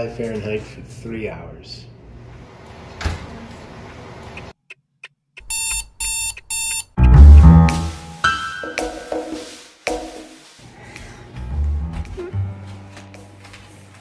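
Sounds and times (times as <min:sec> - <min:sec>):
alarm clock beeping: 0:05.4 - 0:07.6
loud music with heavy bass: 0:07.0 - 0:08.2.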